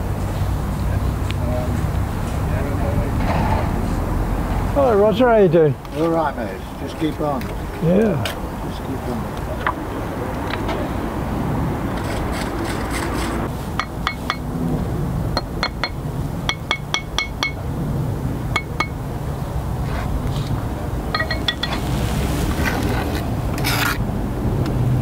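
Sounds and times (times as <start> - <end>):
wind rumble on microphone: 9.1 - 25.0
hammer tapping bricks: 15.4 - 17.6, 21.2 - 21.8.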